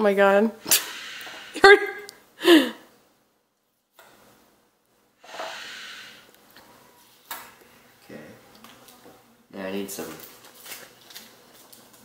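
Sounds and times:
person exhaling hard: 0.6 - 1.6, 2.4 - 2.8, 5.2 - 6.3
sharp puff of breath: 0.6 - 1.6, 5.2 - 6.3.

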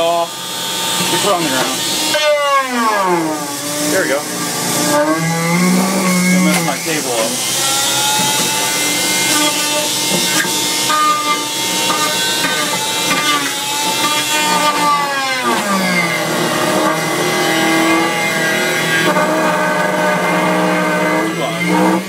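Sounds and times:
electric motor whining: 0.0 - 22.0
wood dragging on shaft: 1.0 - 22.0.

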